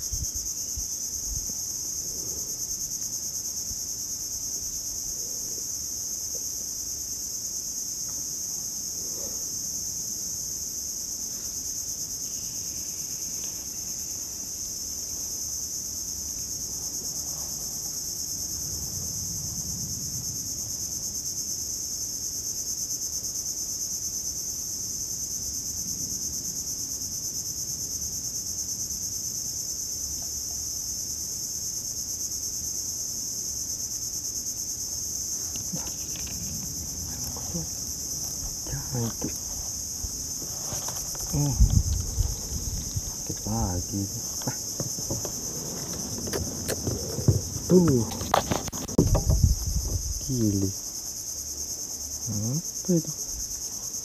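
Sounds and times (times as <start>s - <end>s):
insects shrilling: 33.8s - 54.0s.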